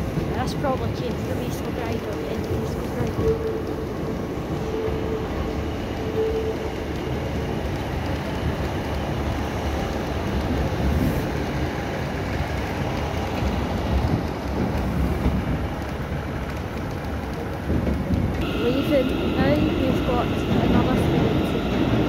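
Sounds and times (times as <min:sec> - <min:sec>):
train rumbling past: 0:00.0 - 0:22.0
thin steady whine: 0:18.4 - 0:22.0.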